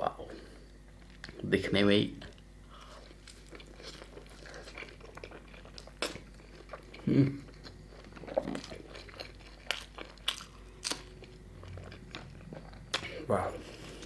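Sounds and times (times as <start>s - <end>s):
person humming: 7.0s - 7.4s.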